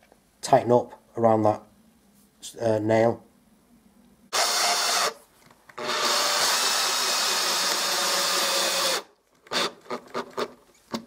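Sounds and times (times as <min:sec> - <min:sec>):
power drill driving a screw: 0:04.3 - 0:05.2, 0:05.8 - 0:10.5.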